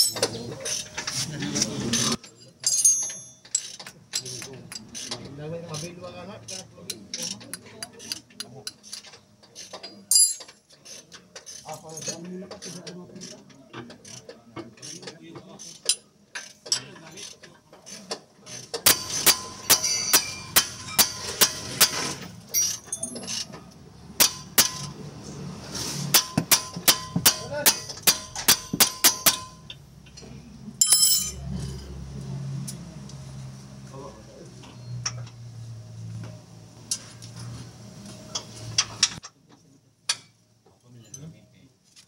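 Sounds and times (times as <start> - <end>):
hammer striking metal: 18.8 - 23.1, 24.2 - 25.0, 26.1 - 29.8.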